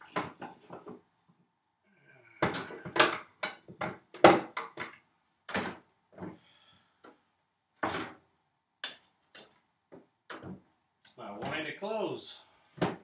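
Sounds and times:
hard wooden knocks and clunks: 0.0s - 1.0s, 2.4s - 6.4s, 7.8s - 8.2s, 9.9s - 10.7s, 12.8s - 13.0s.

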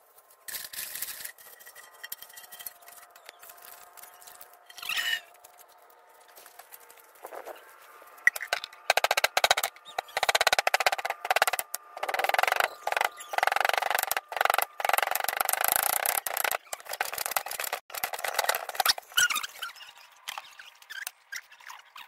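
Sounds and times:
grinding stone knocking on slab: 8.2s - 19.0s.

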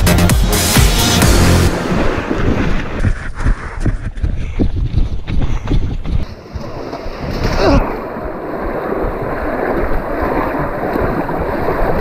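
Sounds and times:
water splashing: 1.7s - 3.6s, 6.2s - 12.0s
wind noise on microphone: 1.7s - 12.0s.

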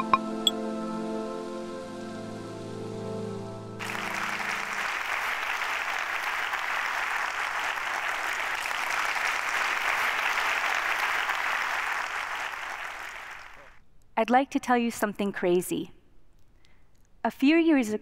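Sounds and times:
intro music: 0.0s - 5.3s
large audience applauding: 3.8s - 13.8s.

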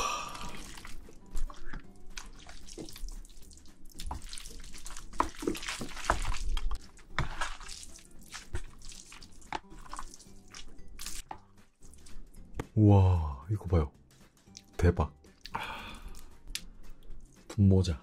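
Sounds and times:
wet sticky squelches of noodles: 0.4s - 12.4s.

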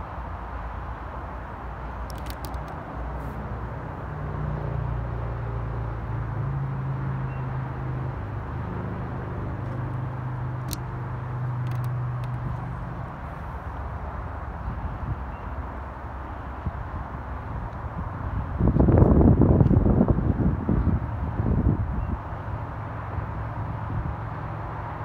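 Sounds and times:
low vehicle hum: 0.0s - 25.0s
faint clicks: 2.0s - 2.8s
outdoor rumble: 7.7s - 16.3s.

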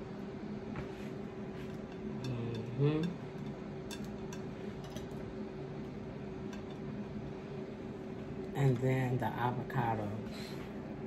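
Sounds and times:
steady low hum: 0.0s - 11.0s
person humming: 2.3s - 3.2s.

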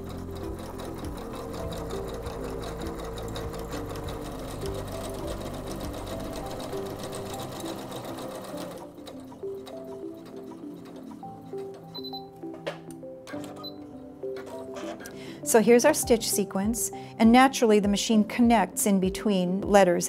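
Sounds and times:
sewing machine stitching: 0.0s - 12.3s, 13.3s - 15.2s.

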